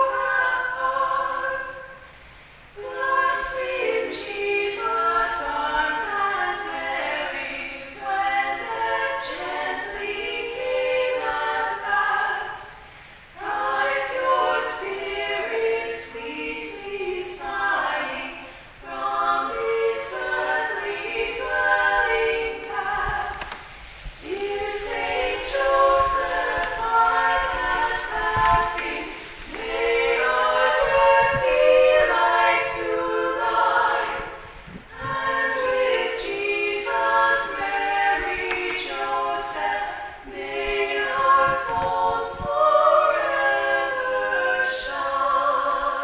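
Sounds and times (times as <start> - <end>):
women singing a hymn a cappella: 0.0 - 46.0
singers breathing: 1.9 - 2.8, 12.7 - 13.4, 18.4 - 18.8.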